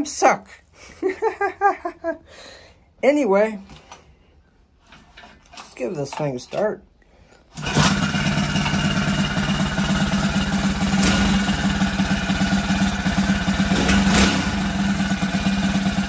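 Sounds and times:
motorized bicycle engine idling: 0:07.6 - 0:16.0.

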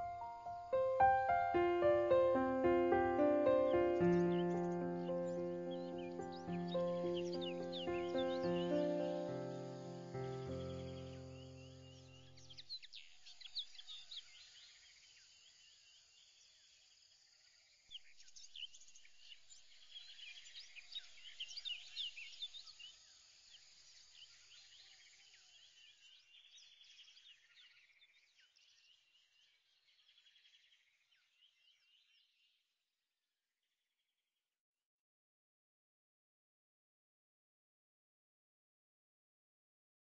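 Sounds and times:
faint bird chirps: 0:00.0 - 0:16.4.

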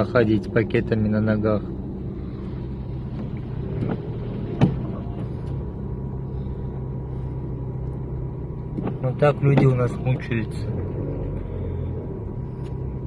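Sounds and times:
car engine humming: 0:00.0 - 0:13.0.

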